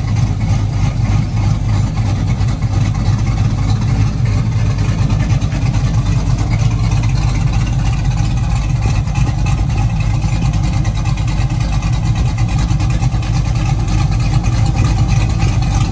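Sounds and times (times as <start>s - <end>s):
loud truck engine idling: 0.0s - 15.9s.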